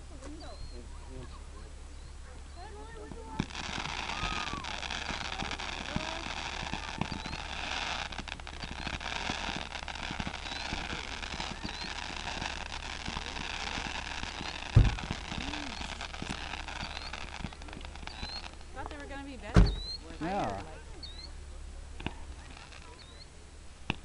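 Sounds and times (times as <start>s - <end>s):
fireworks crackling: 0.0s - 24.0s
loud firework thump: 13.1s - 20.1s.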